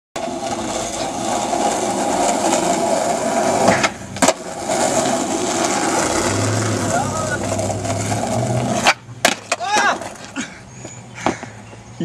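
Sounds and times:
skateboard wheels rolling on asphalt: 0.2 - 11.9
skateboard tail pop: 3.6 - 4.4, 8.8 - 9.9
skateboard landing clack: 3.6 - 6.0, 8.6 - 10.3.

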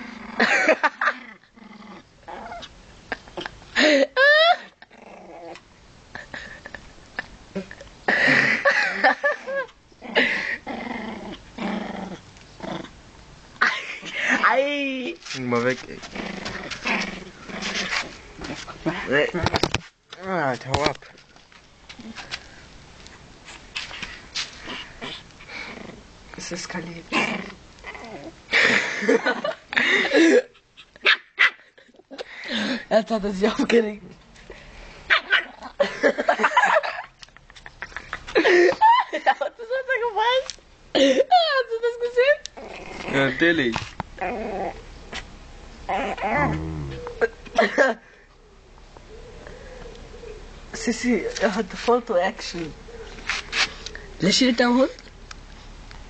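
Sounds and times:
dogs growling in a scuffle: 0.0 - 3.4, 4.8 - 5.6, 10.0 - 13.0, 15.3 - 19.4, 23.4 - 30.0, 42.5 - 45.3, 45.9 - 47.5.

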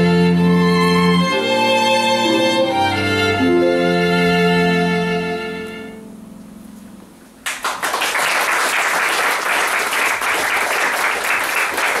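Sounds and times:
string ensemble low note: 0.0 - 7.5
audience applauding: 7.4 - 12.0.

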